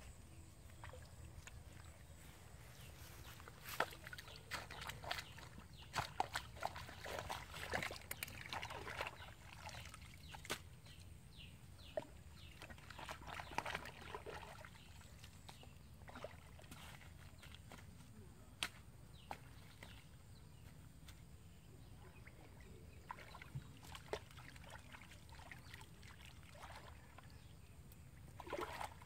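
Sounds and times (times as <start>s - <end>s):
shallow water sloshing and splashing: 3.0s - 11.0s, 11.8s - 18.0s, 22.1s - 29.0s
sharp wet clicks and knocks: 3.7s - 9.2s, 10.2s - 11.0s, 16.6s - 20.0s.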